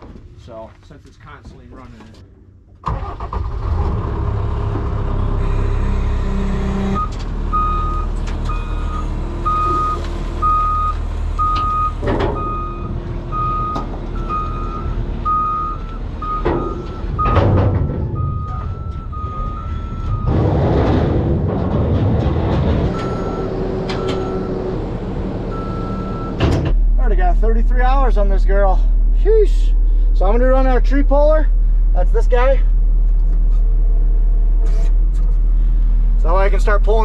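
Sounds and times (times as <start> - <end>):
skid steer engine running: 3.8 - 26.4
backup alarm beeping: 7.0 - 20.4, 22.9 - 24.7, 25.5 - 26.4
loud metal clanks: 16.4 - 24.3.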